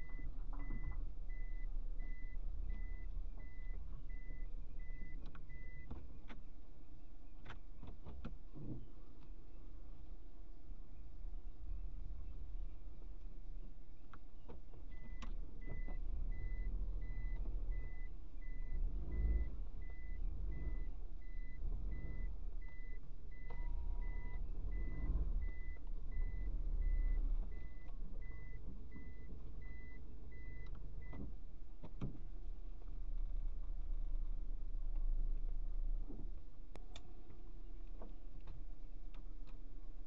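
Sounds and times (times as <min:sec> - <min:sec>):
reverse warning beeping: 0:00.0 - 0:05.9, 0:14.9 - 0:31.2
engine and tyres on gravel: 0:00.0 - 0:40.0.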